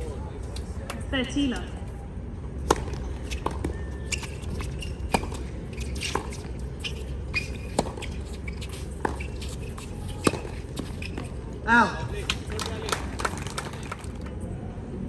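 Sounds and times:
tennis ball hit and bouncing: 2.6 - 11.3.

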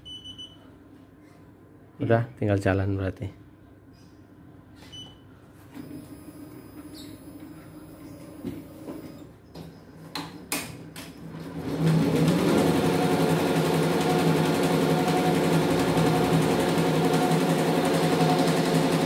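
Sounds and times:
embroidery machine stitching: 11.3 - 19.0.

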